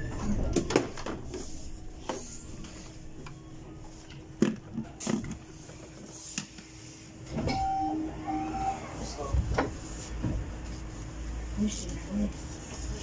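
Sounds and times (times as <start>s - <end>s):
bus interior hum: 0.0s - 13.0s
brief higher tone: 7.5s - 9.0s.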